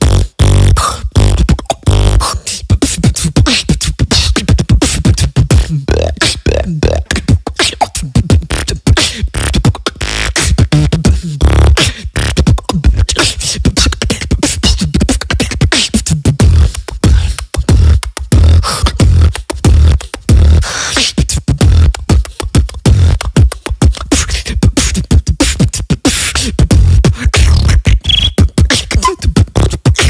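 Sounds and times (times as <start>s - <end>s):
beatboxing into a microphone: 0.0s - 30.0s
sliding pitched vocal sounds: 0.0s - 30.0s.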